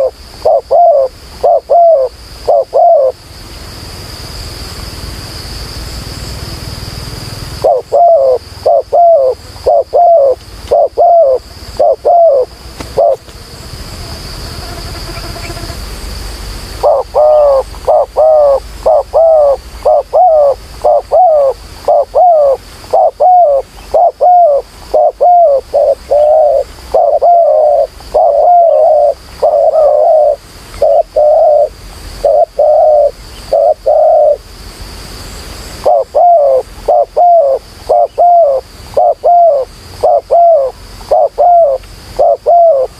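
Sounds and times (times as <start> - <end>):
doves cooing: 0.0 - 3.2, 7.6 - 13.4, 16.8 - 34.4, 35.8 - 42.9.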